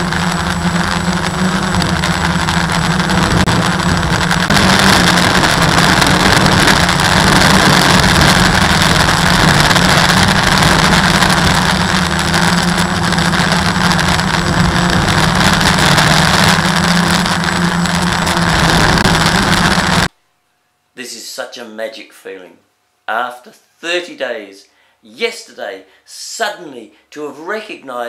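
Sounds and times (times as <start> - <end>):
drone propellers buzzing: 0.0 - 20.1.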